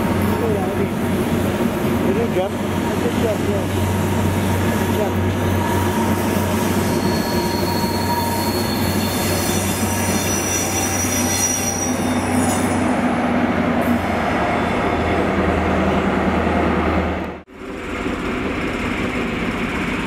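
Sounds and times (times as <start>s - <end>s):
diesel locomotive drone: 0.0s - 20.0s
train wheels squealing: 2.6s - 13.0s, 14.4s - 15.2s.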